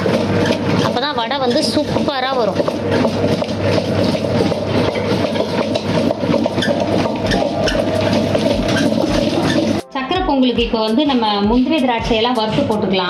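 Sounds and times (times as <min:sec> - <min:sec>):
wet grinder motor hum: 0:00.0 - 0:09.9.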